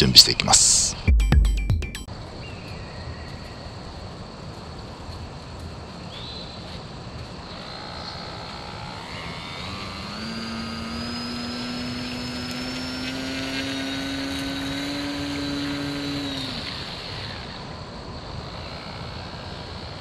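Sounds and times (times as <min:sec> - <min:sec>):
model plane motor whine: 0:07.4 - 0:20.0.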